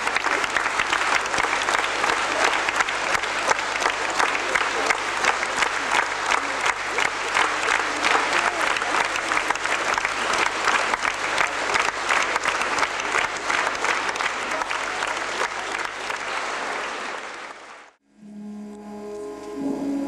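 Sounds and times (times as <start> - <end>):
audience applauding: 0.0 - 18.0
music: 18.1 - 20.0.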